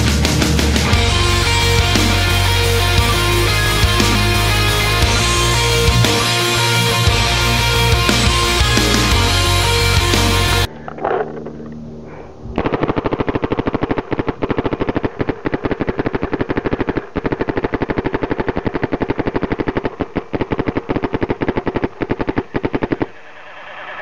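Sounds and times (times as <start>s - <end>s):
paintball marker firing shots: 12.6s - 23.4s.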